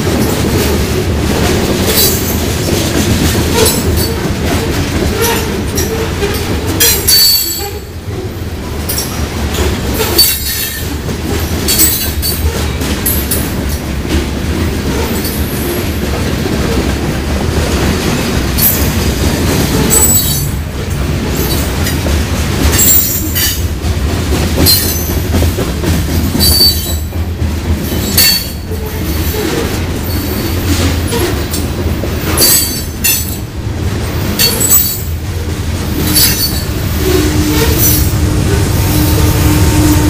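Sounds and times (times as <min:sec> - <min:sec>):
diesel locomotive engine hum: 0:00.0 - 0:40.0
train wheels rumbling on rails: 0:00.0 - 0:40.0
high-pitched flange squeals: 0:36.1 - 0:40.0.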